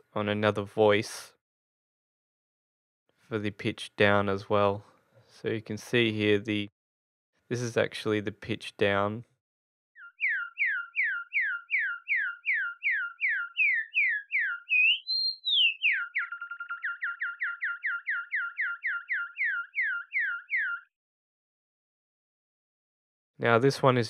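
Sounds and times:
synthesized bird tweets: 10.0s - 20.9s.

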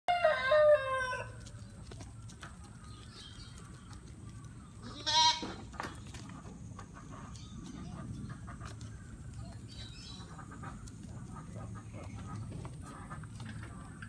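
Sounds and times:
goats bleating: 4.8s - 5.7s.

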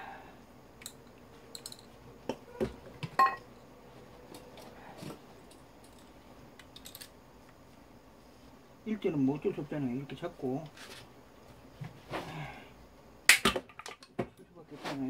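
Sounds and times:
metal parts handling clicks: 0.8s - 1.9s, 5.5s - 7.2s.

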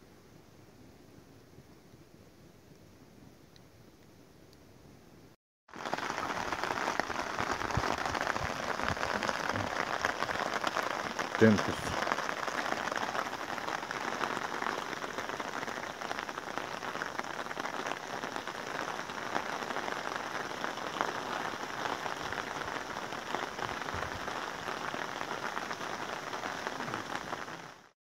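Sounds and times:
rain falling through trees: 5.7s - 27.9s.

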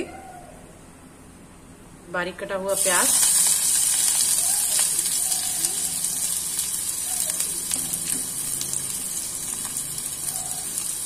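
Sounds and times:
onion sizzling in oil: 2.7s - 11.0s.

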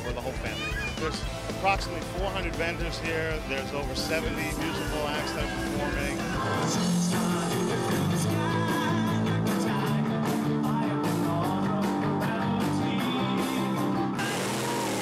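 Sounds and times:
electric guitar: 0.0s - 15.0s
person singing: 4.3s - 15.0s.

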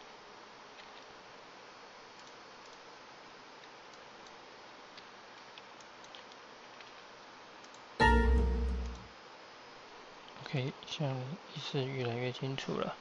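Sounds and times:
keyboard and mouse clicks: 2.2s - 2.8s, 3.6s - 7.0s.

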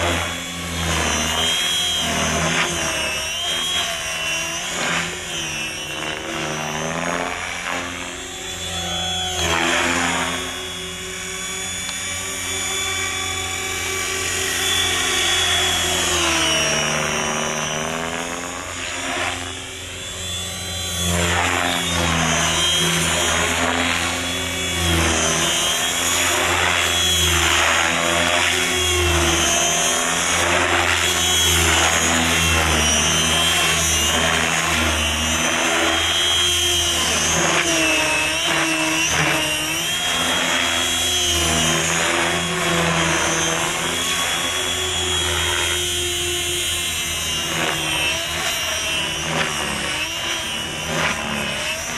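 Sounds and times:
rc helicopter motor and rotor whine: 0.0s - 51.9s.

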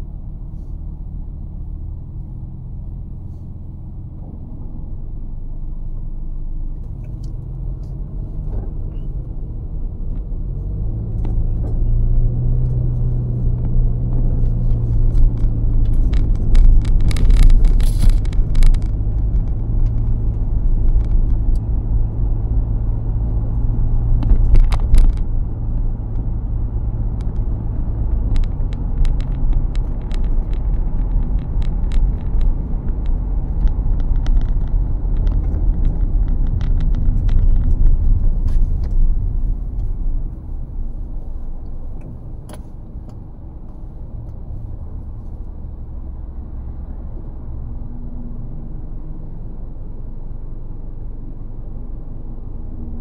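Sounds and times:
car engine and road rumble: 0.0s - 53.0s
sharp clicks and rattles: 12.6s - 45.6s.

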